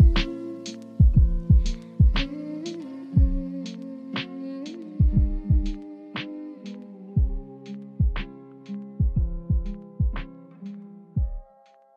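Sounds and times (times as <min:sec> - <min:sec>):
deep drum hits: 0:01.0 - 0:02.3.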